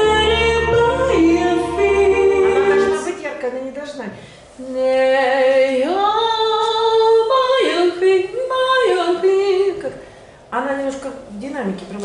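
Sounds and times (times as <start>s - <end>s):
woman singing: 0.0s - 3.4s, 4.6s - 10.0s.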